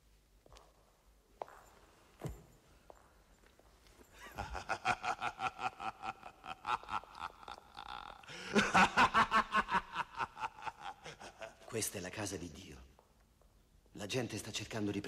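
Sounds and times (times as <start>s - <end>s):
man laughing: 4.2s - 11.7s.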